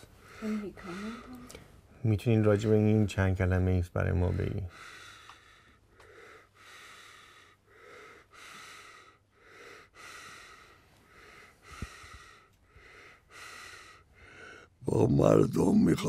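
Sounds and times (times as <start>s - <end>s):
person breathing: 0.0s - 1.8s, 4.2s - 14.8s.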